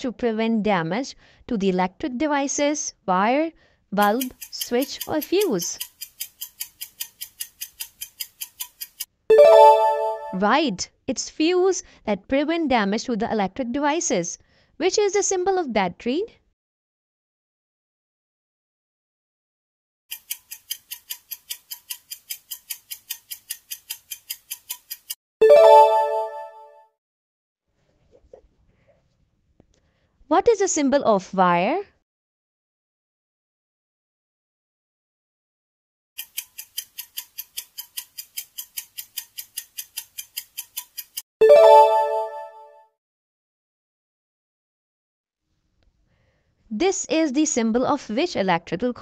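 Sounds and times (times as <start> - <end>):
clock ticking fast: 4.0 - 10.3, 20.1 - 26.1, 36.2 - 41.2
bright ringing chime: 9.3 - 10.4, 25.4 - 26.7, 41.4 - 42.8.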